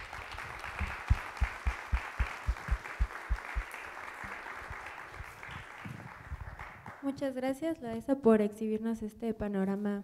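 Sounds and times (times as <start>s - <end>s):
audience applauding: 0.0s - 7.0s
close-by clapping: 0.0s - 7.1s.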